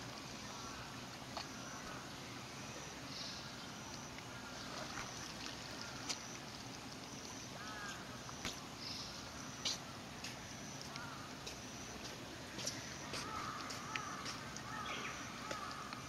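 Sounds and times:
water sloshing: 3.6s - 16.0s
water splashing and dripping: 3.8s - 16.0s.

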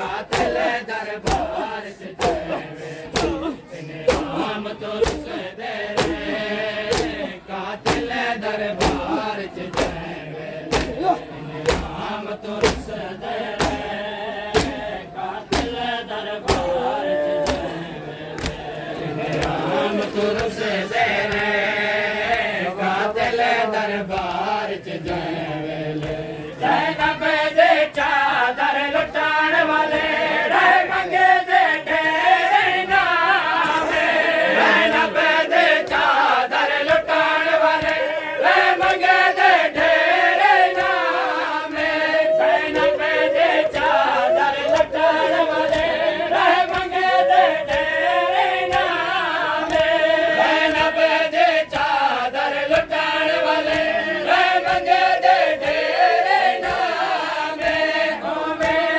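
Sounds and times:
men chanting in unison: 0.0s - 58.9s
hands beating chests: 0.3s - 18.7s.

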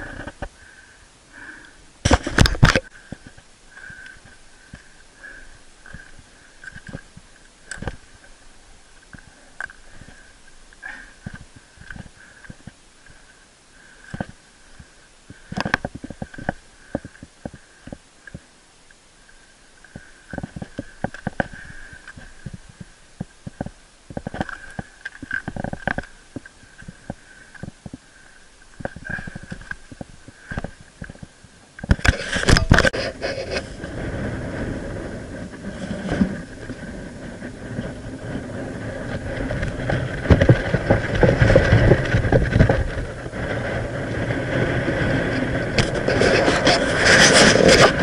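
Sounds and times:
camera housing thuds and rubbing: 2.0s - 2.8s, 31.8s - 33.7s.

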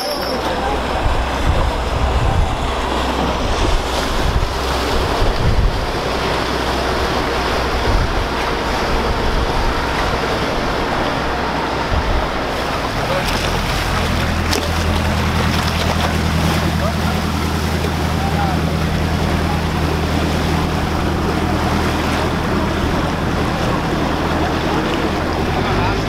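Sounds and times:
water sloshing and lapping: 0.0s - 26.0s
wind rumbling on microphone: 0.0s - 26.0s.

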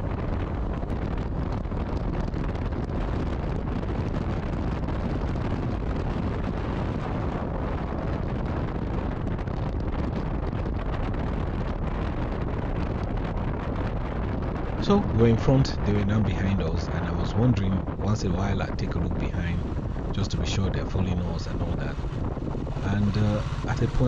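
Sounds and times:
wind buffeting microphone: 0.0s - 24.0s
motorcycle running: 19.2s - 24.0s.

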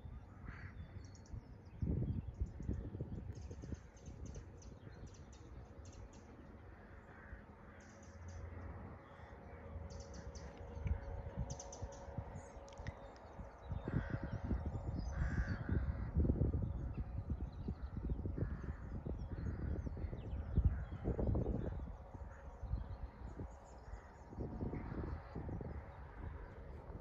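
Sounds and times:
birds chirping: 0.0s - 27.0s
low microphone rumble: 10.0s - 27.0s.

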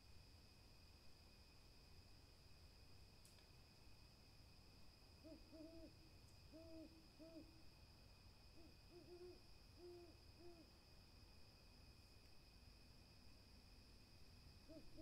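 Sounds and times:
owl hooting: 5.2s - 7.6s, 8.6s - 10.7s, 14.7s - 15.0s.

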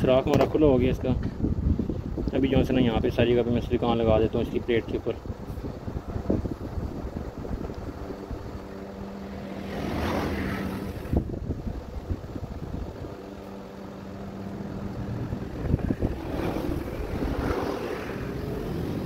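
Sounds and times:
motor humming: 5.2s - 19.0s.

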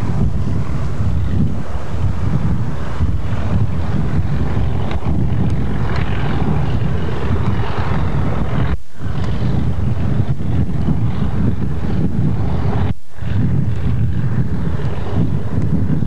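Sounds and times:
diesel locomotives drone: 0.0s - 16.0s
wind noise on microphone: 0.0s - 16.0s.

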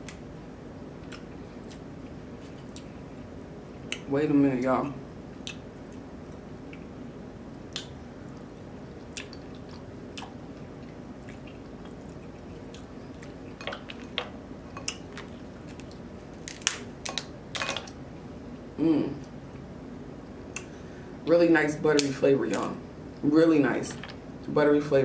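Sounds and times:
chewing: 7.7s - 16.0s
crab shell cracking: 14.8s - 18.0s.

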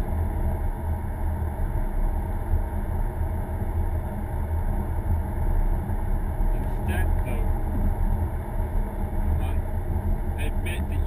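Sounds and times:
car interior engine and road hum: 0.0s - 11.0s.

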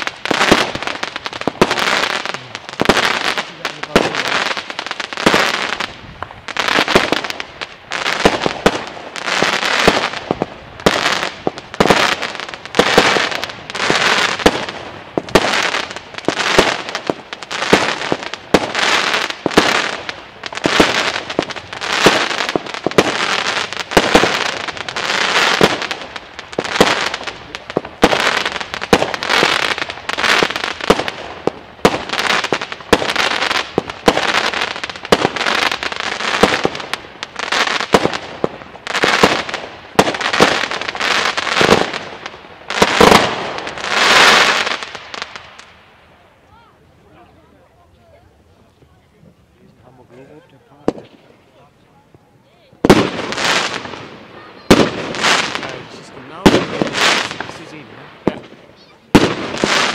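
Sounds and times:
firework shots banging: 0.0s - 37.1s, 50.8s - 51.4s, 52.7s - 59.9s.

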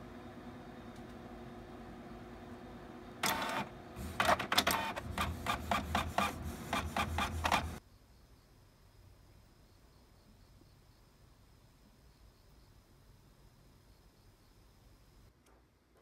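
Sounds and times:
printer whirring: 0.0s - 7.8s
quick mechanical strokes: 3.2s - 7.8s.

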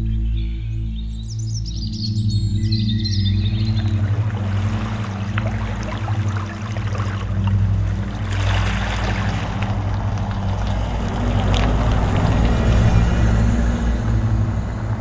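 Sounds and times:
steady low hum: 2.1s - 15.0s
bus driving past: 3.7s - 15.0s.

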